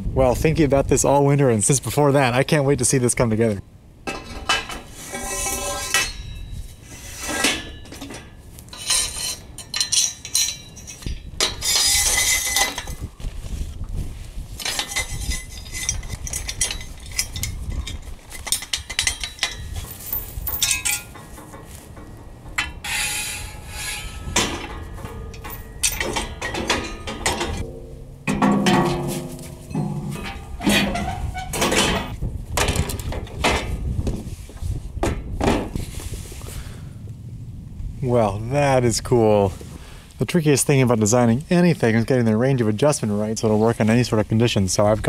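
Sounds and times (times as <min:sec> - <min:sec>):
steel tubing clanking together: 0:04.0 - 0:13.1, 0:14.6 - 0:33.9
metal knocks and scrapes: 0:04.0 - 0:13.6, 0:14.6 - 0:35.9.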